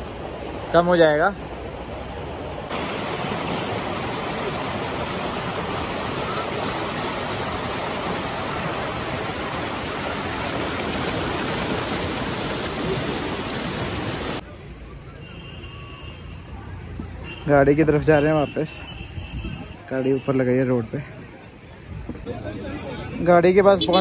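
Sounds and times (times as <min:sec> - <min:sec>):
river rushing over stones: 0:00.0 - 0:14.4.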